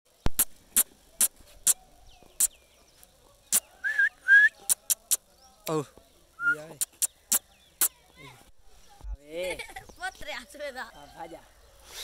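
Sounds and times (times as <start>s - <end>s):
short whistles: 3.5s - 4.9s
tongue clicks: 4.3s - 5.2s, 6.7s - 7.9s.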